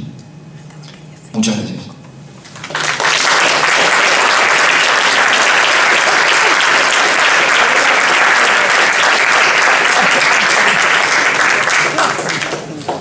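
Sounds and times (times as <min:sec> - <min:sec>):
audience applauding: 0:02.5 - 0:13.0.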